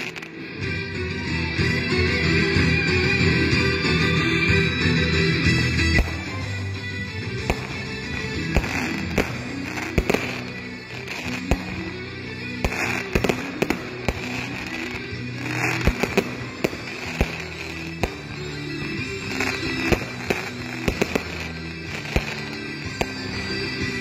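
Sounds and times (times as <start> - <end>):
music playing: 0.0 - 24.0
fireworks bangs: 5.8 - 6.7, 7.3 - 24.0.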